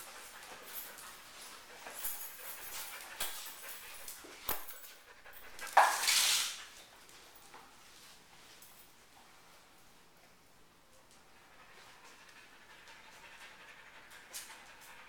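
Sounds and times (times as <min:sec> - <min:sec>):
dog moving on tile floor: 0:00.0 - 0:09.4.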